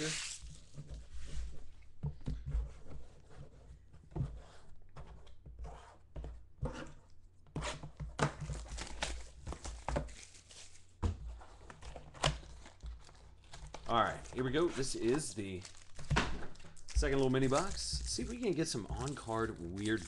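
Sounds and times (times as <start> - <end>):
cards shuffled and slid: 0.0 - 0.7
paper-like rustling: 8.6 - 10.9, 12.4 - 20.0.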